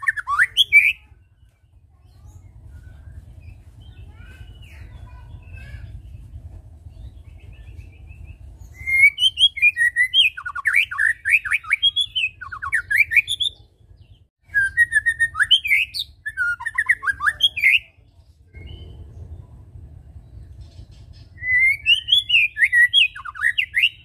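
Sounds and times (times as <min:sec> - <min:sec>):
bird singing whistled notes: 0:00.0 - 0:19.5, 0:20.2 - 0:24.0.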